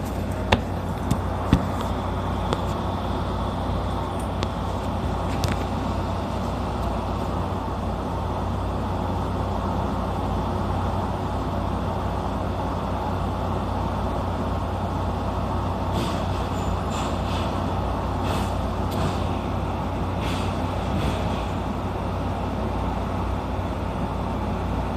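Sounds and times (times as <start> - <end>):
electric train low hum: 0.0 - 24.9
short air hisses: 20.2 - 21.6.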